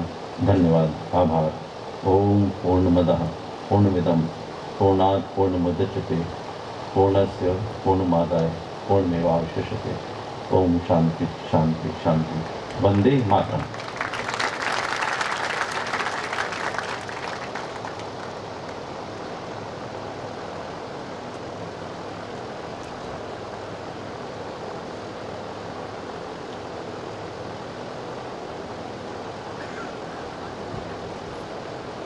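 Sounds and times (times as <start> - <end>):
steady background hiss: 0.0 - 32.0
audience applauding: 12.4 - 18.8.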